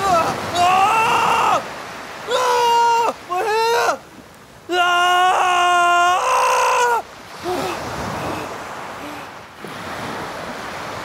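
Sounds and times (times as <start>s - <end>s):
person wailing cry: 0.0s - 4.0s, 4.7s - 8.5s
surf on stony shore: 0.0s - 11.0s.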